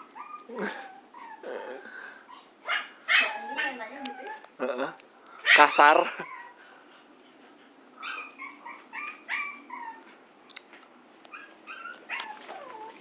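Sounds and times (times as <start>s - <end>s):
dogs whining and yipping: 0.0s - 1.5s, 2.3s - 4.4s, 5.5s - 6.8s, 8.0s - 10.2s, 11.3s - 13.0s.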